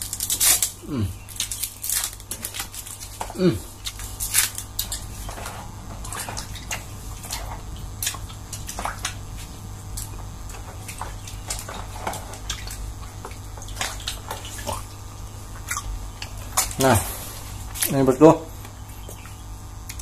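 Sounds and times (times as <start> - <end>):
hands sloshing water in basin: 4.8 - 18.1.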